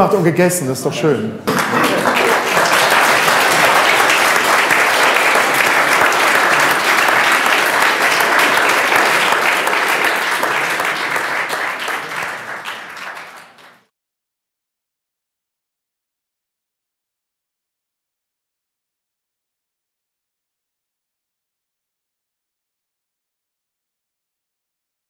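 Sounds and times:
audience applauding: 1.5s - 13.9s.

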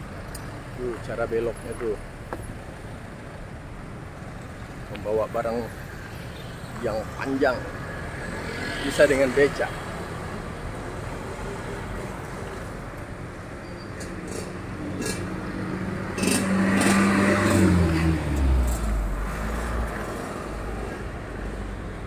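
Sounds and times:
cars and motorcycles driving past: 4.2s - 22.0s
vehicle engine passing close: 14.3s - 21.1s.

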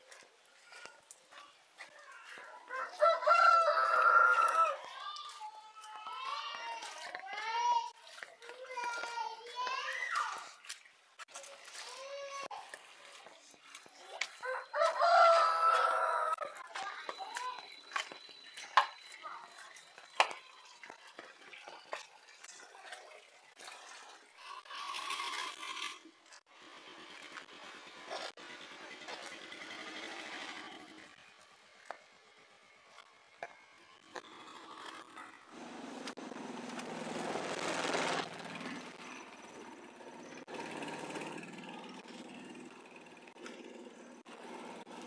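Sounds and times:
footsteps on muddy lane: 0.0s - 24.2s
small motorcycle passing: 0.1s - 5.4s, 11.8s - 18.2s, 23.4s - 45.0s
loud rushing noise: 36.2s - 39.0s.

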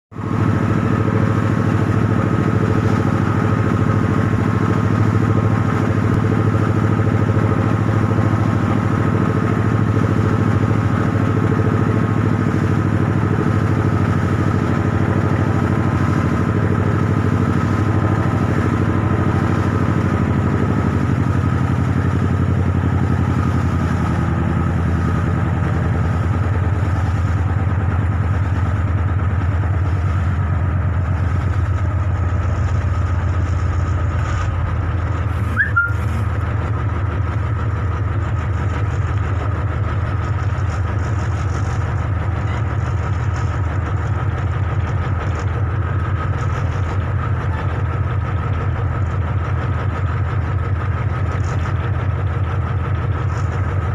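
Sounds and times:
boat engine humming: 0.1s - 53.9s.

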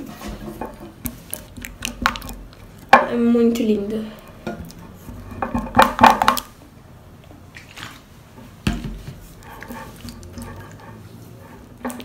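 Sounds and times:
spatula scraping glass bowl: 9.3s - 12.0s.

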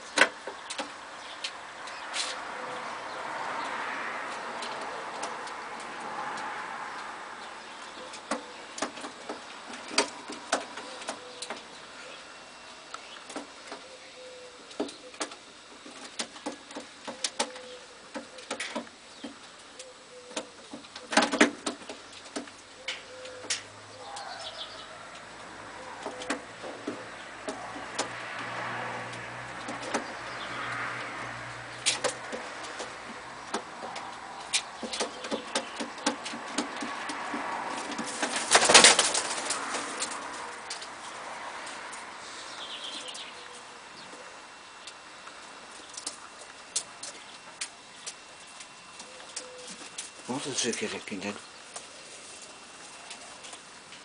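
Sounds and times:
pigeons cooing softly: 0.0s - 54.0s.

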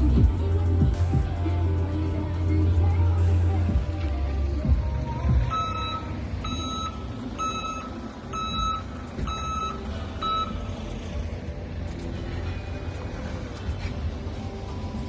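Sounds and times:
reversing alarm beeping: 5.4s - 10.8s.

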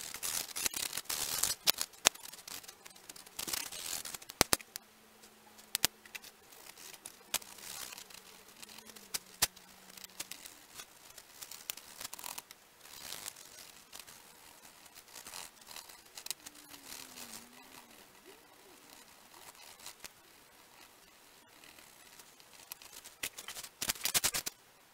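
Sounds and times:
sharp clicks: 0.5s - 4.8s.

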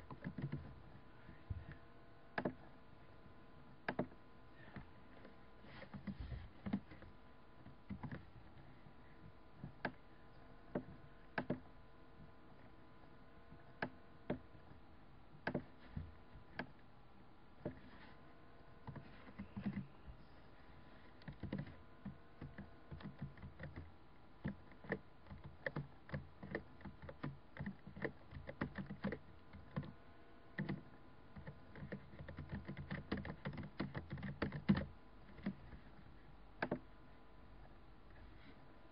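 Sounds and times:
faint steady hum: 0.0s - 38.9s
keyboard keys clicking: 0.1s - 0.7s, 21.2s - 29.9s, 30.6s - 35.6s.

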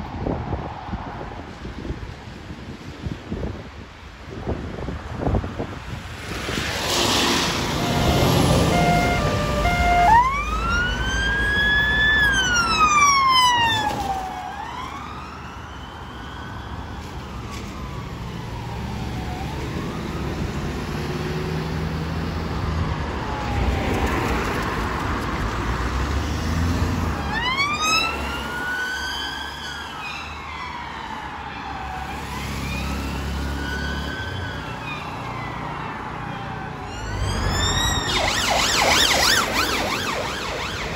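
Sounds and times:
engine and road noise: 0.0s - 40.9s
police sirens wailing: 7.4s - 21.0s, 22.5s - 24.8s, 27.0s - 40.9s
short stepped siren tones: 7.8s - 11.9s, 36.7s - 40.9s.

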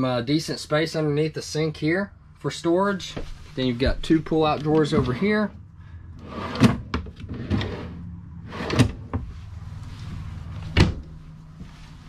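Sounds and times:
drawers sliding on metal slides: 6.2s - 9.3s.

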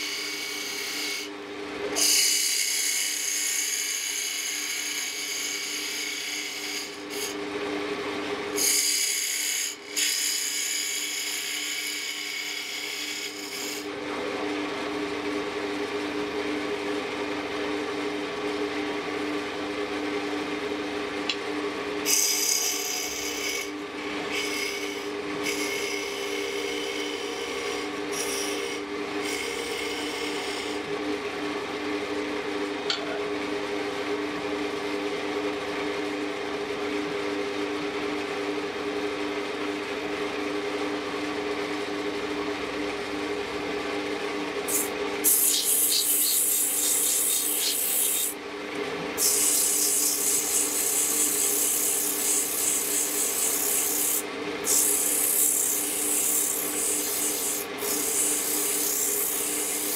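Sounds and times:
wood lathe motor hum: 0.0s - 7.4s, 8.5s - 14.4s, 21.8s - 31.4s, 44.4s - 59.9s
sandpaper rubbing spinning wood: 44.7s - 48.4s, 49.2s - 59.9s.

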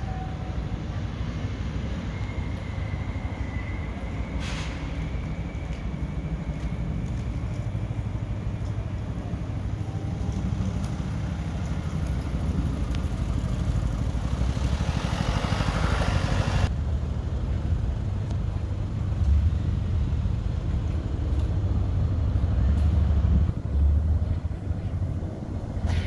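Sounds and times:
traffic rumble: 0.0s - 26.0s
hiss: 4.3s - 5.1s.

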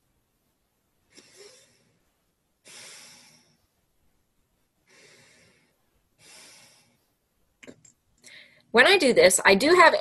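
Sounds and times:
soft nasal breaths: 1.0s - 7.4s.

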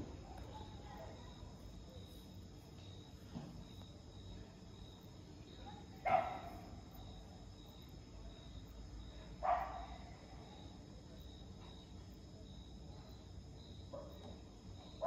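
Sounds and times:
crickets chirring: 0.0s - 15.0s
dog barking: 5.6s - 6.6s, 9.4s - 10.1s, 13.9s - 14.3s.

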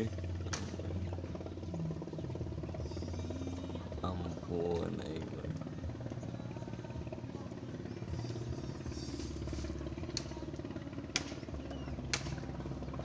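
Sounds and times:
small engine running: 0.0s - 13.0s
sharp clicks: 11.1s - 11.5s.

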